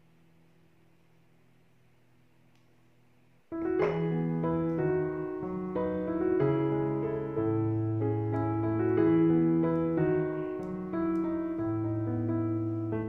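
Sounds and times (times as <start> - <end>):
piano music: 3.5 - 13.0.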